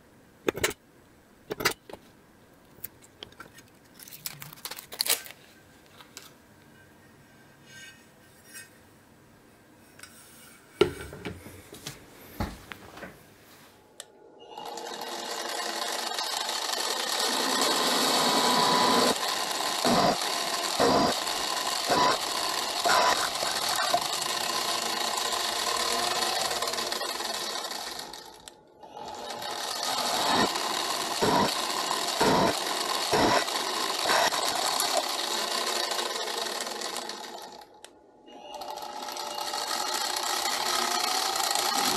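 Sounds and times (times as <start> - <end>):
electric motor running: 14.5 - 41.9.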